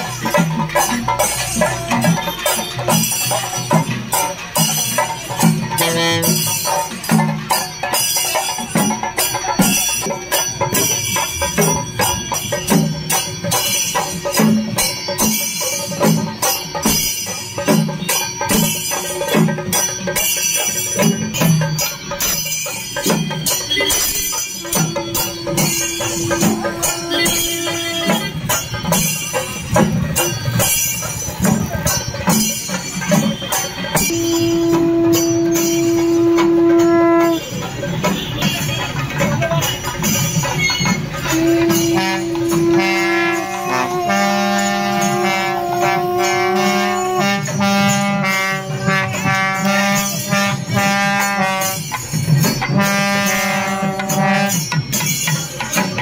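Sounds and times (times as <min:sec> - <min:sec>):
conch shell blown: 0:05.7 - 0:06.7, 0:24.6 - 0:28.6, 0:34.0 - 0:37.6, 0:40.7 - 0:52.0, 0:52.7 - 0:54.8
barrel drums beaten with sticks: 0:21.0 - 0:37.3.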